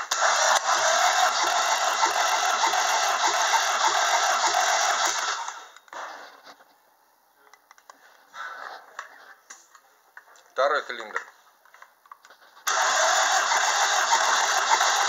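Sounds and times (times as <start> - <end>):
engine starter whirring: 0.0 - 5.8, 12.7 - 15.0.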